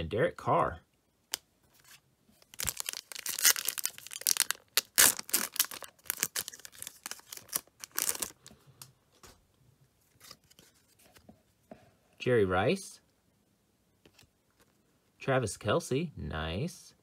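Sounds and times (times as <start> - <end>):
foil wrapper tearing and crinkling: 2.5 - 8.4.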